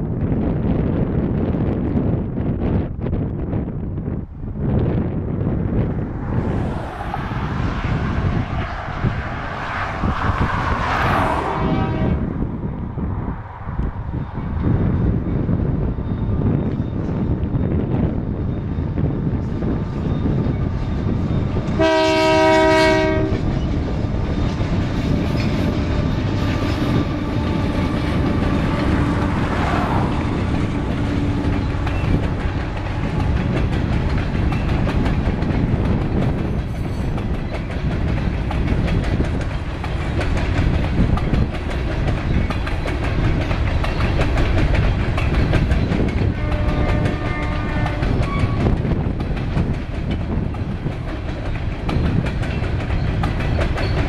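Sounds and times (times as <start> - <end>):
diesel locomotives rumbling: 0.0 - 54.0
rolling train wheels: 0.0 - 54.0
train horn blast: 11.3 - 12.4, 21.7 - 23.6, 46.2 - 48.8.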